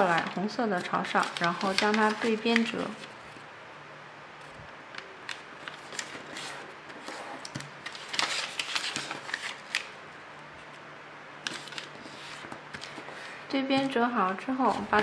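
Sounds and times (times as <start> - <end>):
paper rustling and crinkling: 0.0 - 3.4, 5.2 - 10.0, 11.4 - 15.0.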